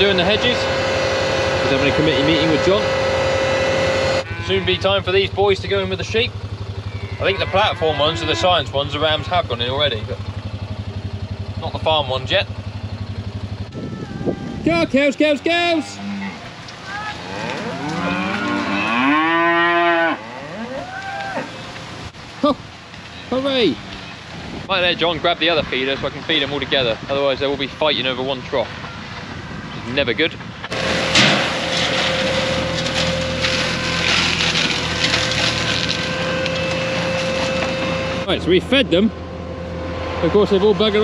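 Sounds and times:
cattle mooing: 0:00.0 - 0:05.0, 0:06.9 - 0:09.5, 0:15.6 - 0:21.5
hedge cutter humming: 0:00.0 - 0:05.4, 0:30.7 - 0:38.3.

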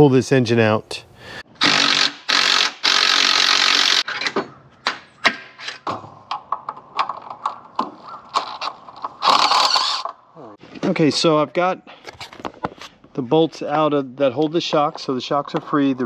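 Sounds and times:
cordless power driver whirring: 0:01.6 - 0:04.0, 0:09.2 - 0:10.1.

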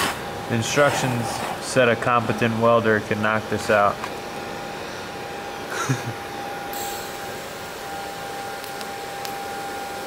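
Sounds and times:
faint high whine: 0:02.2 - 0:10.0
welding arc hissing: 0:05.8 - 0:10.0.

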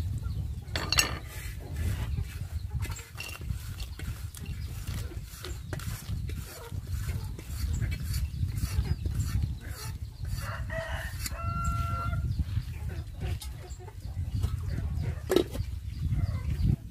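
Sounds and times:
metal spoon scraping a pot: 0:00.8 - 0:10.5.

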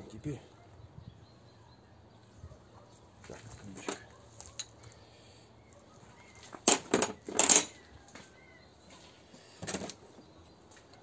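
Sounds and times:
clattering handling noises: 0:03.5 - 0:05.0, 0:06.3 - 0:08.3, 0:08.9 - 0:11.0.

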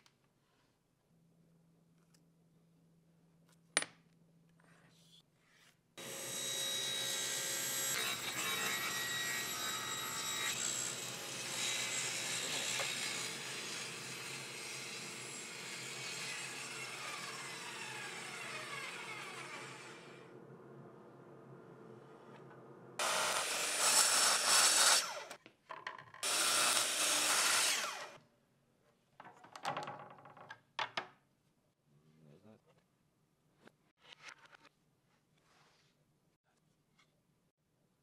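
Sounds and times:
table saw cutting wood: 0:06.0 - 0:20.3, 0:23.0 - 0:25.4, 0:26.2 - 0:28.2
saw blade coasting down: 0:15.8 - 0:20.3, 0:22.4 - 0:25.4, 0:26.2 - 0:28.2.

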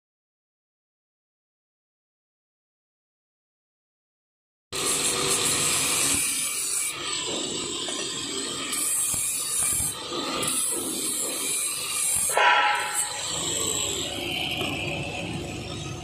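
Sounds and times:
angle grinder scraping metal gear: 0:04.8 - 0:16.0.

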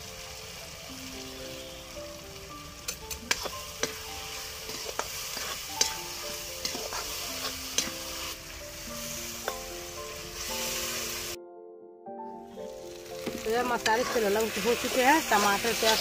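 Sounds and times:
frying sizzle: 0:00.0 - 0:11.4, 0:12.5 - 0:16.0
soft background music: 0:00.0 - 0:16.0
metal spatula scraping a pan: 0:02.9 - 0:08.4, 0:13.3 - 0:16.0.

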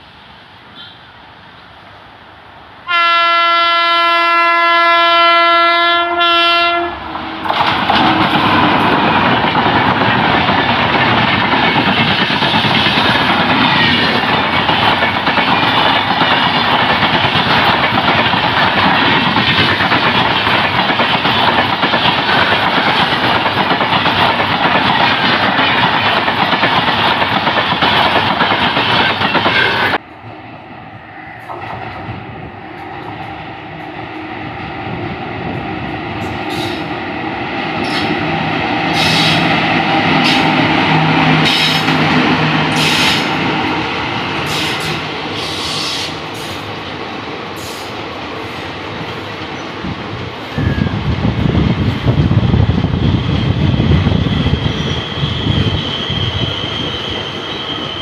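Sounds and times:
train wheel and rail noise: 0:00.0 - 0:58.0
train horn blast: 0:02.8 - 0:07.0, 0:29.4 - 0:30.0, 0:42.7 - 0:43.4.

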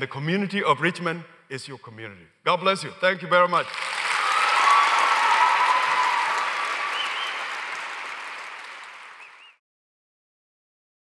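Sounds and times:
audience applauding: 0:03.6 - 0:09.6.

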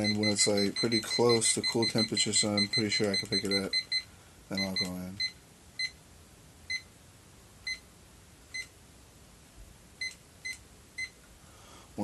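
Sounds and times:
digital timer beeping: 0:00.0 - 0:06.0.

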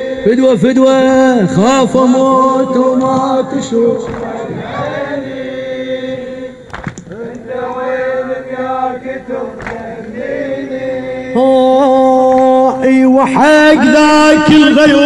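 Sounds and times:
men chanting together: 0:00.0 - 0:15.0
sharp slaps: 0:04.0 - 0:05.1, 0:06.6 - 0:07.4, 0:09.6 - 0:10.2.

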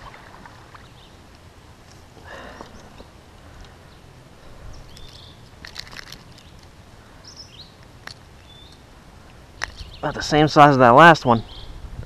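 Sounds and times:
faint outdoor ambience: 0:00.0 - 0:12.0
small metal clicks: 0:04.9 - 0:06.7.

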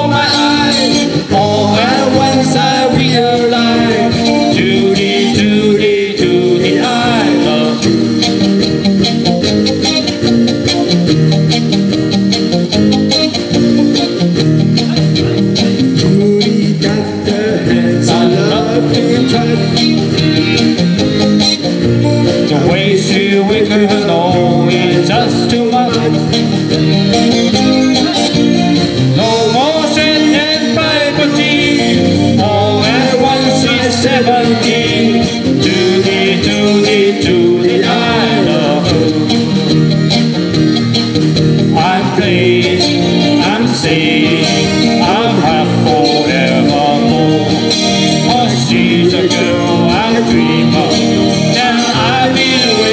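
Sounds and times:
drum kit: 0:00.0 - 0:52.9
guitars strumming: 0:00.0 - 0:52.9.

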